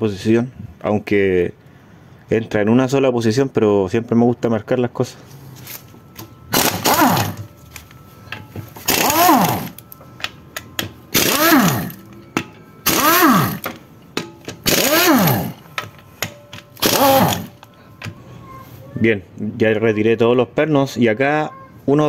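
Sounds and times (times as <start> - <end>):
impact wrench bursts: 6.2 - 7.6, 8.3 - 18.1.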